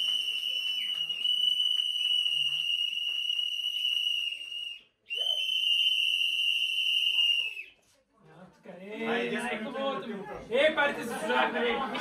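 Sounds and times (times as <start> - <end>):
high-pitched whistle-like tone: 0.0 - 7.8.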